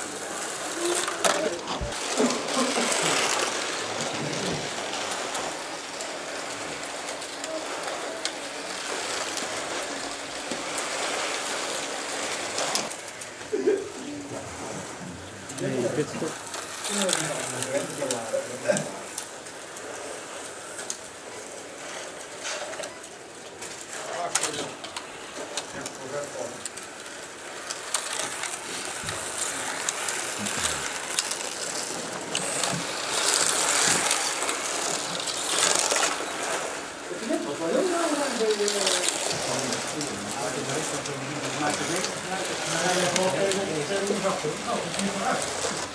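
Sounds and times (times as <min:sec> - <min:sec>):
slot cars whirring: 0:00.0 - 0:23.2, 0:23.8 - 0:45.9
slot cars whirring on track: 0:24.4 - 0:45.9.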